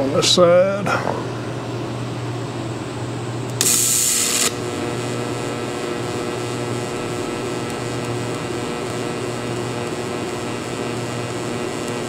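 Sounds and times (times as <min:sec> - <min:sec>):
welding torch hum: 0:01.4 - 0:12.0
welding arc buzzing: 0:02.6 - 0:12.0
arc striking hiss: 0:03.5 - 0:12.0.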